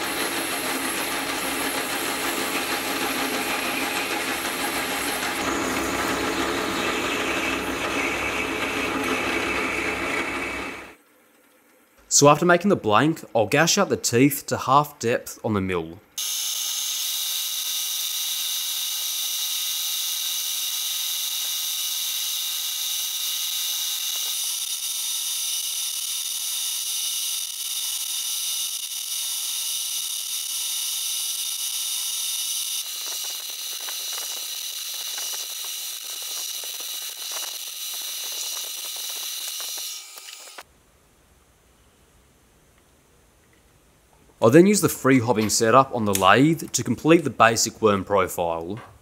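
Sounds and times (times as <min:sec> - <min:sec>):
cutter crackle: 0:00.0 - 0:11.0, 0:16.2 - 0:40.7
milling spindle high whine: 0:00.0 - 0:11.0, 0:16.2 - 0:40.6.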